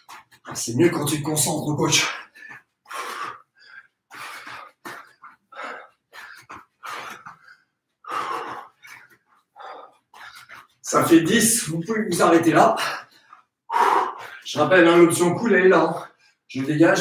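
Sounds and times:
man breathing heavily: 0:02.0 - 0:10.8, 0:12.8 - 0:14.5.

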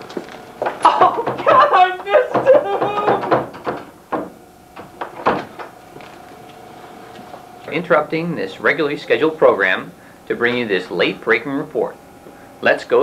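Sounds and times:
faint steady hum: 0:00.0 - 0:13.0
short knocks: 0:00.6 - 0:05.8
man making wordless sounds: 0:00.8 - 0:03.4.

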